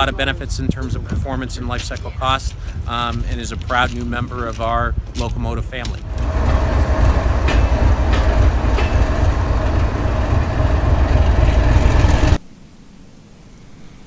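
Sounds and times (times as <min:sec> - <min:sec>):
diesel locomotive engine rumbling: 0:00.0 - 0:12.4.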